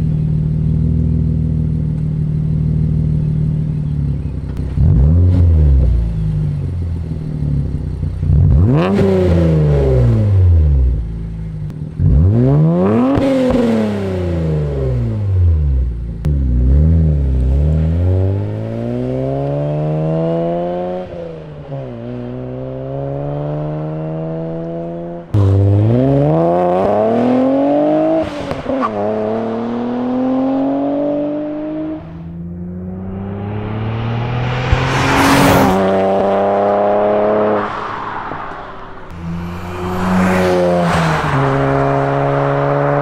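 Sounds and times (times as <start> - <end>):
car engine revving: 2.6 - 43.0
car accelerating through gears: 8.4 - 10.8, 16.6 - 43.0.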